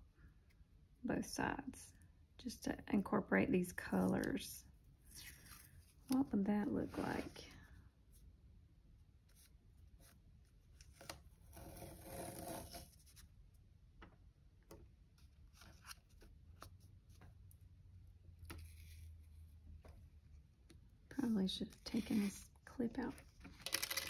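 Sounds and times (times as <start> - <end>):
tape unrolling and rubbing: 10.8 - 13.3.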